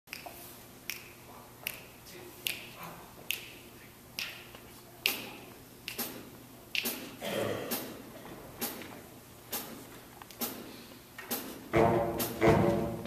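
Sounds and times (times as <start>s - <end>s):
finger snaps: 0.1s - 7.1s.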